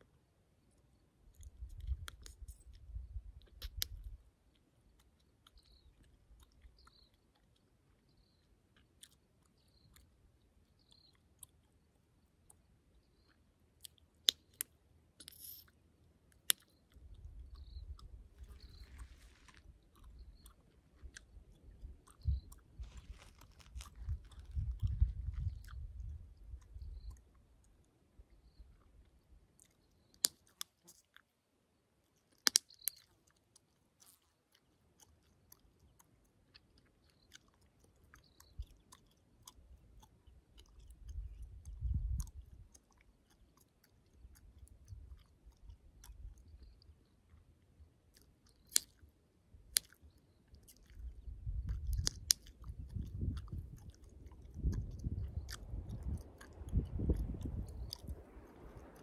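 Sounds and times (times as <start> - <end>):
gum chewing: 1.2 - 27.9, 28.5 - 31.3, 32.0 - 59.0
gum pops: 3.5 - 4.1, 32.3 - 33.2, 50.6 - 59.0.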